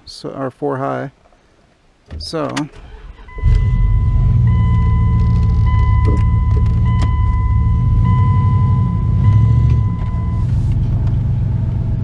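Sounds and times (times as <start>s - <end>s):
truck engine rumbling: 2.8s - 12.0s
high-pitched electronic tone: 3.3s - 10.6s.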